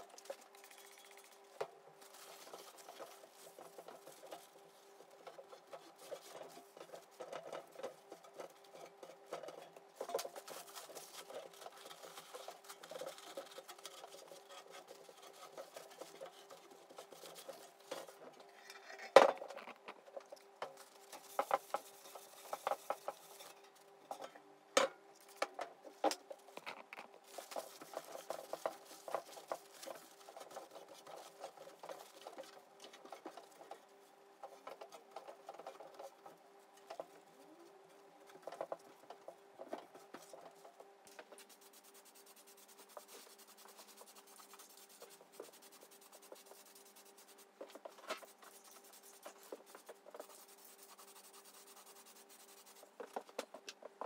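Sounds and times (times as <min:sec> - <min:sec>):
faint steady hum: 0:00.0 - 0:54.0
paper towel rubbing metal: 0:41.3 - 0:53.0.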